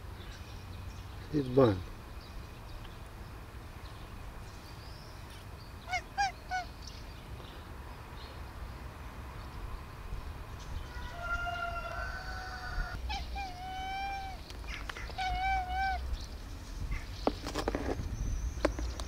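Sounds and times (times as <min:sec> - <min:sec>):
animal calls: 0:05.8 - 0:06.7, 0:10.9 - 0:16.2.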